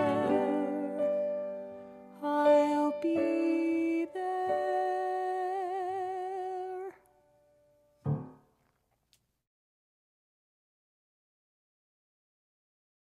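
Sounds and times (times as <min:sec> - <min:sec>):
sustained musical accompaniment: 0:00.0 - 0:03.1.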